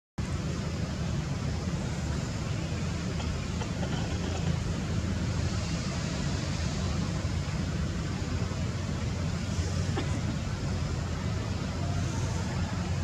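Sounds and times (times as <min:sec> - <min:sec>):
low rumbling background noise: 0:00.2 - 0:13.0
light hiss: 0:00.3 - 0:13.0.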